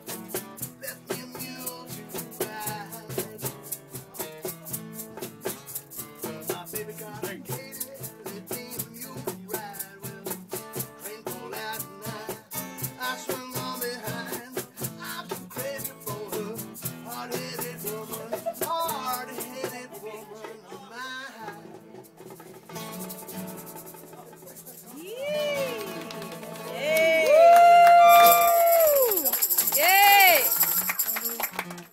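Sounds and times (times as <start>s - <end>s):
egg shaker rhythm: 0.0s - 20.9s, 21.7s - 26.0s, 28.0s - 31.5s
strummed acoustic guitar: 0.0s - 26.8s
man singing: 0.7s - 4.6s, 6.2s - 21.8s.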